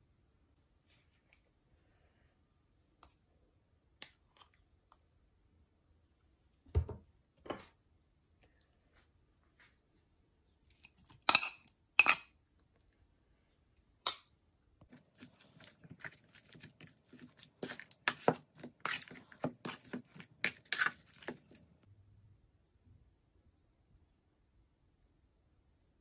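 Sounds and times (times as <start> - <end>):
metal spoon clinking on bowl: 10.8 - 12.3
spoon scraping while stirring: 14.9 - 21.8.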